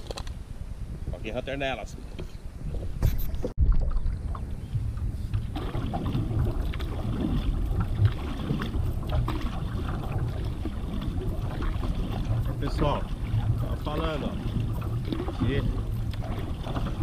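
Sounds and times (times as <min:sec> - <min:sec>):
wind rumble on microphone: 0:00.0 - 0:17.0
water washing along paddleboard: 0:03.5 - 0:17.0.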